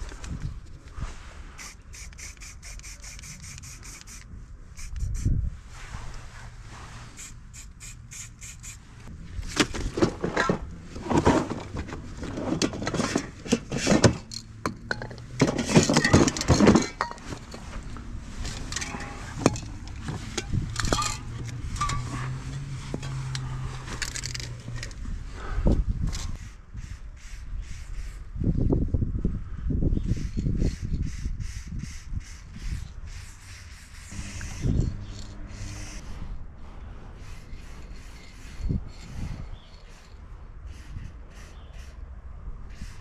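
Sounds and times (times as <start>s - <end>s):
spray cans clinking together: 20.4s - 21.2s
low steady hum: 34.1s - 37.6s.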